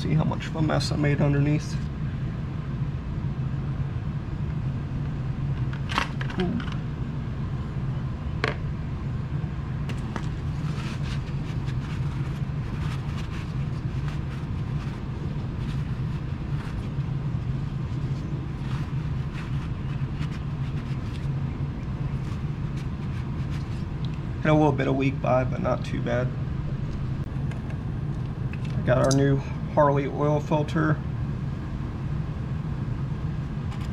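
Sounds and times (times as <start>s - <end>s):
low machine hum: 0.0s - 33.9s
paper towel rustling: 10.0s - 24.0s.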